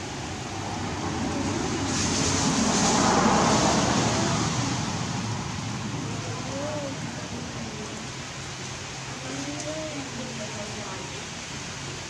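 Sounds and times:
vehicle passing: 0:00.0 - 0:07.5
rain hiss: 0:00.0 - 0:12.0.

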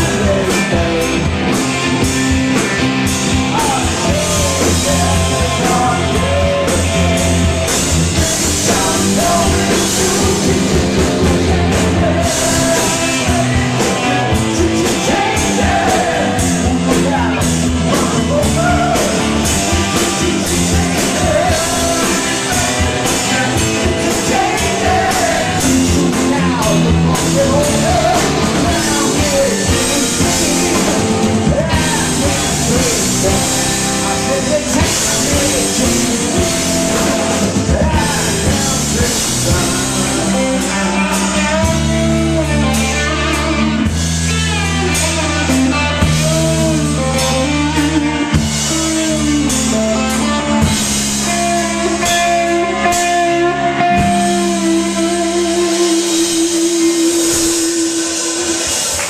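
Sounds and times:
lead singer: 0:00.0 - 0:59.0
live rock band playing: 0:00.0 - 0:59.0.

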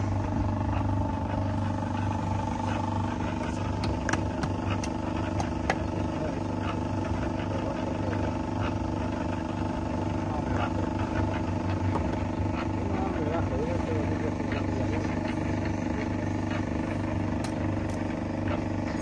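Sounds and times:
steady engine hum: 0:00.0 - 0:19.0
hammer tapping concrete block: 0:03.8 - 0:05.8.

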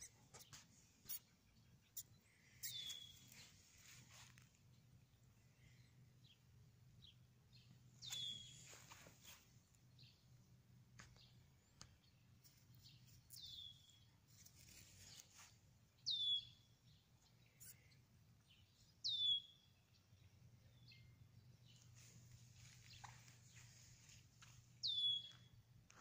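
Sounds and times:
mouse squeaking: 0:00.0 - 0:01.3, 0:01.9 - 0:03.4.

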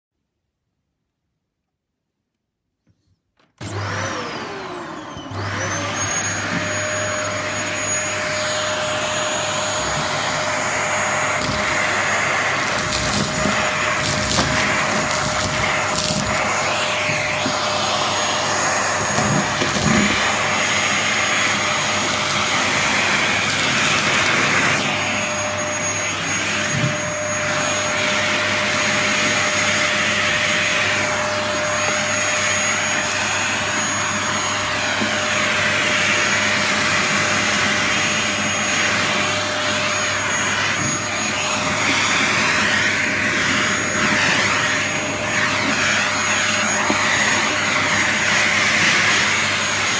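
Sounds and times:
vacuum cleaner running: 0:03.5 - 0:49.9.

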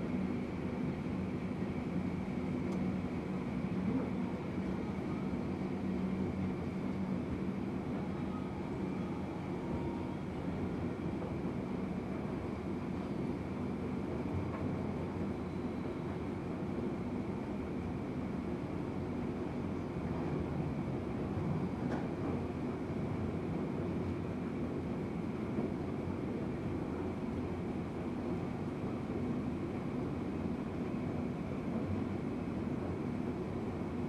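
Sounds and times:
faint high whine: 0:00.0 - 0:13.7.

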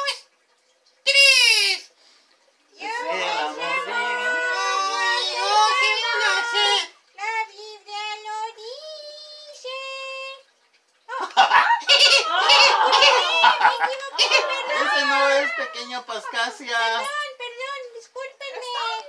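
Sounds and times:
excited chatter: 0:02.8 - 0:06.9, 0:11.8 - 0:17.1
high puppet voices singing hymn: 0:02.8 - 0:07.5
loud laughter: 0:11.1 - 0:15.7.

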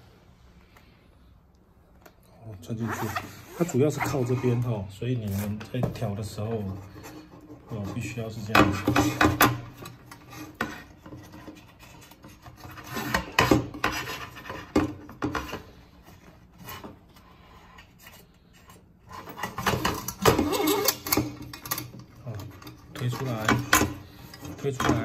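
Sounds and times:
strap scraping through buckle: 0:19.1 - 0:21.4.

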